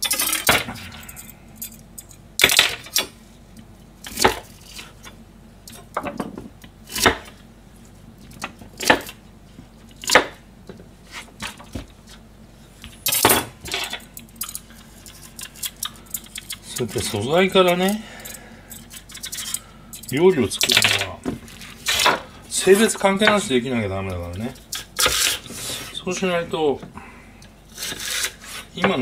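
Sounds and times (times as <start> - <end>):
peeler scraping lotus root: 14.4 - 20.3, 24.1 - 26.0, 27.7 - 29.0.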